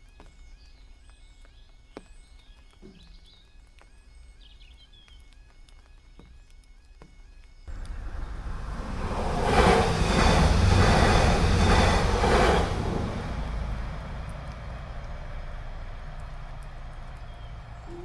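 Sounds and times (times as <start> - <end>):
train wheels rushing on rails: 7.7 - 18.0.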